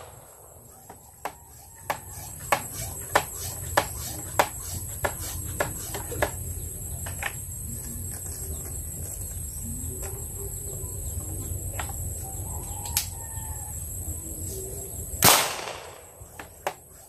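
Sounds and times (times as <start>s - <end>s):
marble gun firing bang: 15.2s - 16.2s.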